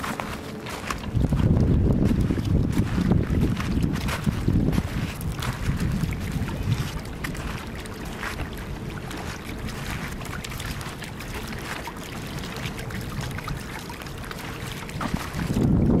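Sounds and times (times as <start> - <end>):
dog paws splashing in water: 0.0 - 16.0
wind rumble on microphone: 0.0 - 16.0.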